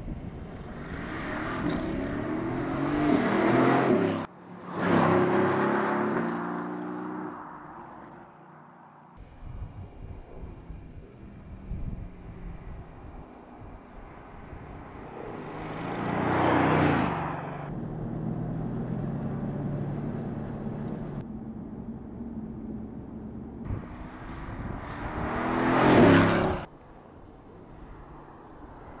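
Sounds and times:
car engine passing: 0:00.5 - 0:09.2, 0:11.2 - 0:21.2, 0:23.7 - 0:26.7.

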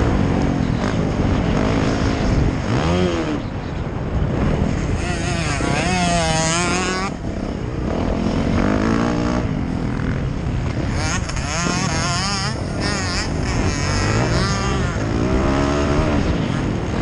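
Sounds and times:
dirt bike engine revving: 0:00.0 - 0:03.6, 0:04.3 - 0:17.0.

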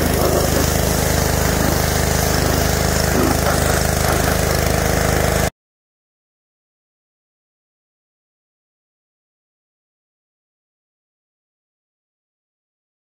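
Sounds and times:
pressure washer engine droning: 0:00.0 - 0:05.5
water jet hissing: 0:00.0 - 0:05.5.

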